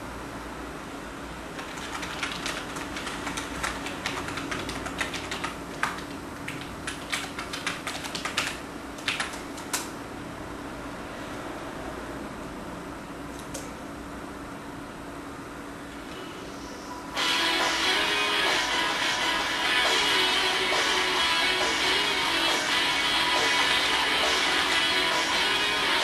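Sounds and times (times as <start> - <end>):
steady low hum: 0.0 - 26.0
computer keyboard key clicks: 1.7 - 9.9.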